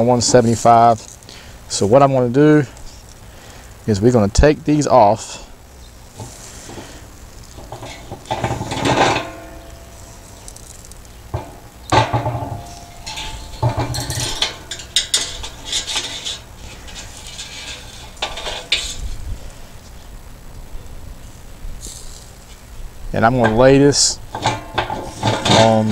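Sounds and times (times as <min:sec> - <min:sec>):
metal grate and rods clanking: 0:07.6 - 0:10.4, 0:11.3 - 0:19.1, 0:23.3 - 0:25.9.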